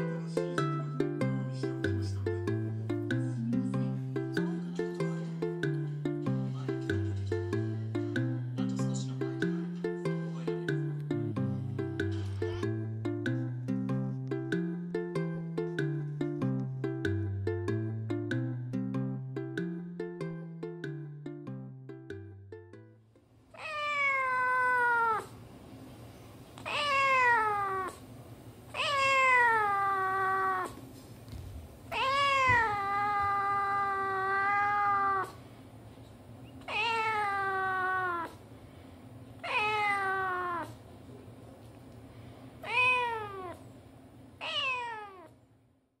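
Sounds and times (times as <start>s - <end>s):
cat meowing: 23.6s - 25.4s, 26.6s - 28.1s, 28.7s - 30.8s, 31.9s - 35.4s, 36.6s - 38.4s, 39.4s - 40.8s, 42.6s - 43.6s, 44.4s - 45.4s.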